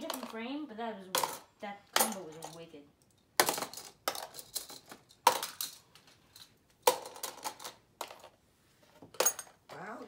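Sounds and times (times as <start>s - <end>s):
plastic and metal parts clattering: 3.4s - 9.6s.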